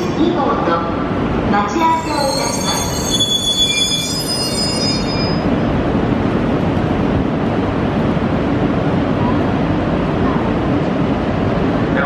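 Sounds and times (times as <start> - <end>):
train wheels squealing: 1.9 - 5.5.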